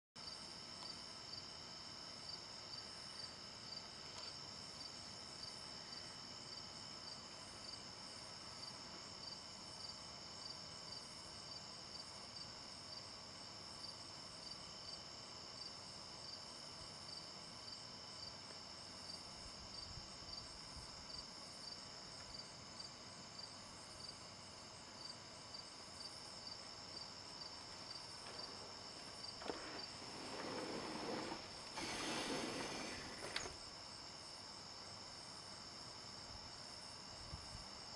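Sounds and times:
crickets trilling: 13.9s - 37.9s.

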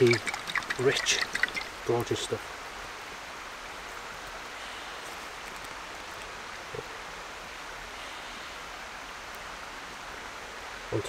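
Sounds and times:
steady outdoor rushing noise: 0.0s - 7.8s.

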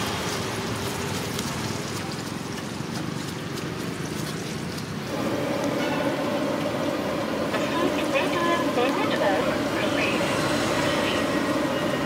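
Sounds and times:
deep-frying sizzle in oil: 0.0s - 2.5s.

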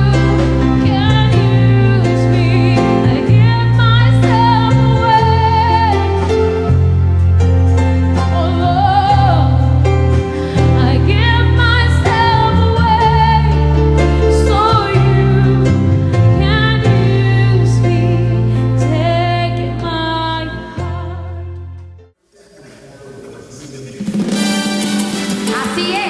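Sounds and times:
woman singing worship song: 0.0s - 6.5s, 8.1s - 9.8s, 10.6s - 21.5s
instrumental accompaniment with bass: 0.0s - 22.2s, 24.1s - 26.0s.

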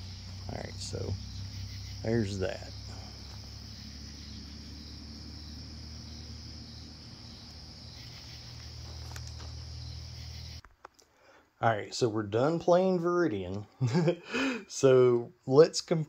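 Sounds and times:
crickets trilling: 0.0s - 10.6s
low hum: 0.0s - 10.6s.

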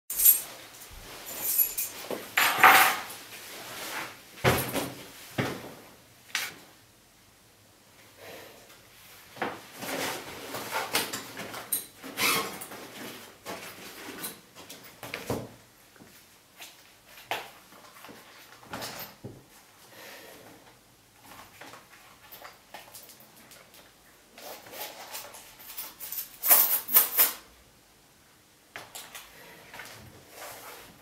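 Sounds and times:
keys put down on table: 0.1s - 3.1s, 4.4s - 5.0s.

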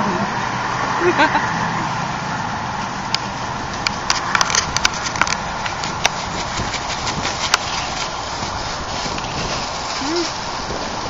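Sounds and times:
charcoal grill sizzling and popping: 2.8s - 11.0s.

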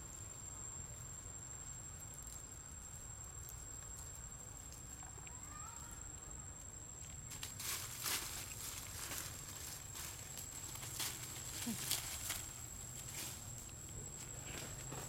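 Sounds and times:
high insect drone: 0.0s - 15.0s
dry leaf litter rustling: 7.2s - 15.0s.

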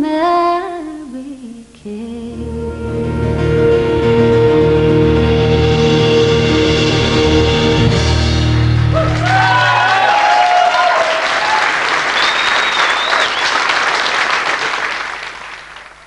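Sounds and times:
band chord ringing out: 2.3s - 9.7s
audience applauding: 8.6s - 16.0s
high whistles: 12.0s - 13.8s.

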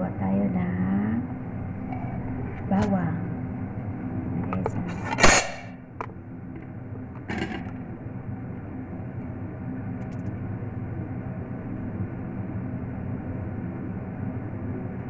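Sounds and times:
steady low hum: 0.0s - 15.0s
kitchen items clattering: 4.4s - 5.6s.

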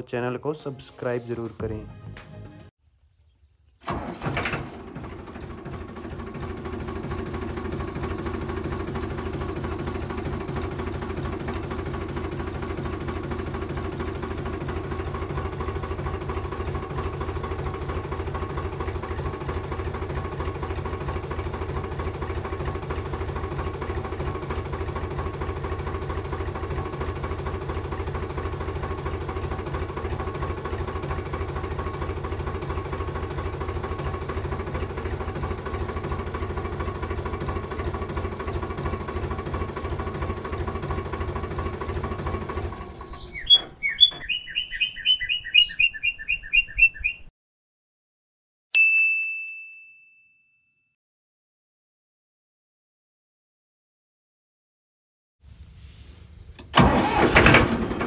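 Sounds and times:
model diesel engine puttering: 3.8s - 46.1s, 56.5s - 58.0s.

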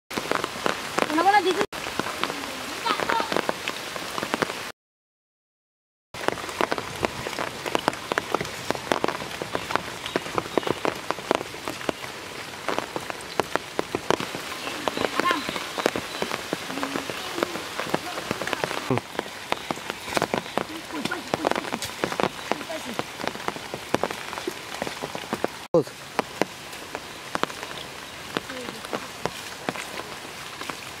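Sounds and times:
heavy rain on water: 0.1s - 4.7s, 6.2s - 31.0s.

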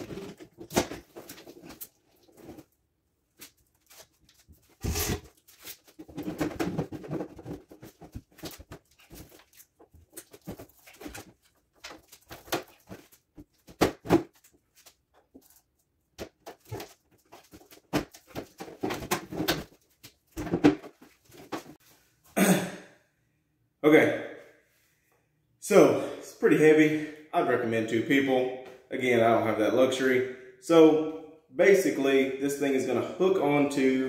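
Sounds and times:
metal case knocking and scraping: 5.9s - 9.3s.

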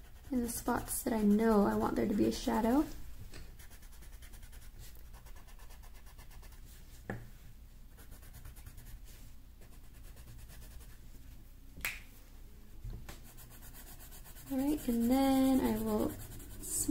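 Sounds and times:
colouring strokes on paper: 0.0s - 2.9s, 8.0s - 11.0s, 13.2s - 16.9s.

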